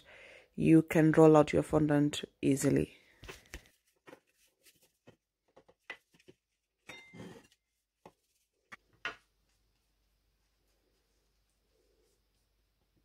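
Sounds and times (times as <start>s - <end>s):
glass ringing: 6.9s - 7.3s.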